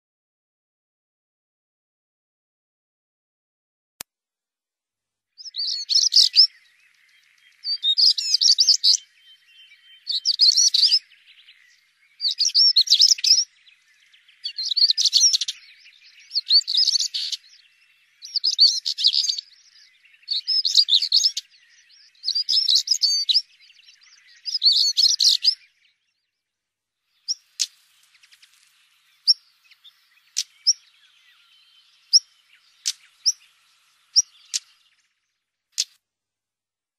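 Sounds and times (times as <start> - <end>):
bird song scratchy warbling: 5.4 - 25.8, 27.2 - 35.0
bird sharp ticking calls: 5.4 - 26.1, 27.1 - 36.0.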